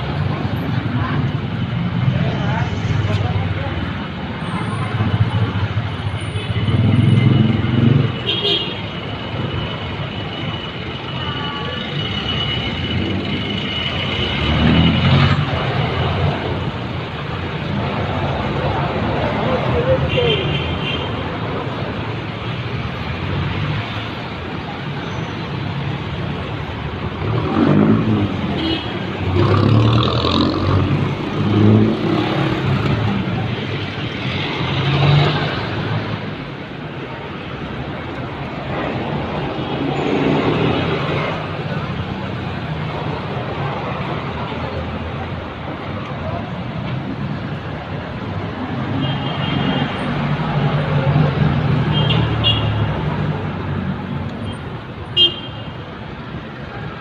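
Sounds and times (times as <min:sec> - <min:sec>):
motorcycles passing: 0:00.0 - 0:08.4, 0:21.2 - 0:49.0
cars passing: 0:00.0 - 0:57.0
street traffic: 0:00.0 - 0:57.0.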